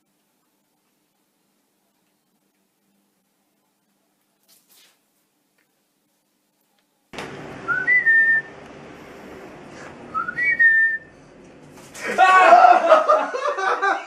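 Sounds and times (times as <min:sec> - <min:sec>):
person whistling rising notes: 0:07.7 - 0:08.5, 0:10.1 - 0:11.1.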